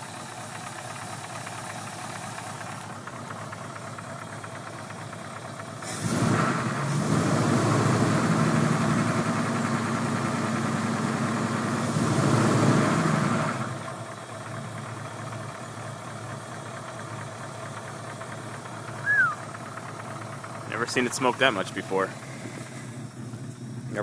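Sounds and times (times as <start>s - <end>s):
engine tapping chatter: 0.0s - 5.8s, 14.1s - 24.0s
car engine idling: 0.0s - 24.0s.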